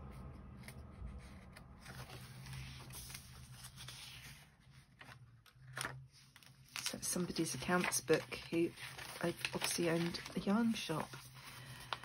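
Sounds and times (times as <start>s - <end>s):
low steady hum: 0.0s - 12.0s
paper page turning: 0.2s - 12.0s.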